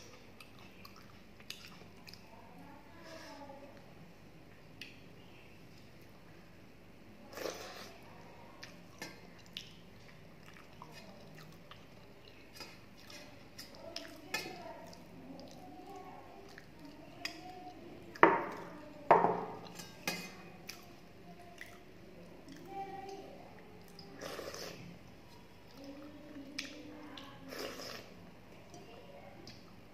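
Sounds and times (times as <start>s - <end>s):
chewing and mouth sounds: 0.0s - 2.3s, 8.5s - 18.7s, 19.6s - 22.8s
wet squishing and dripping: 8.6s - 17.8s.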